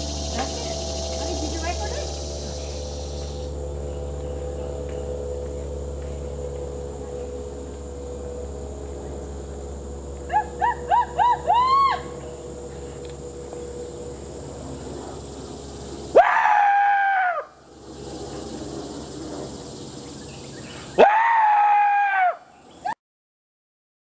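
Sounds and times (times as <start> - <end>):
signal horn blasts: 0.0 - 16.2.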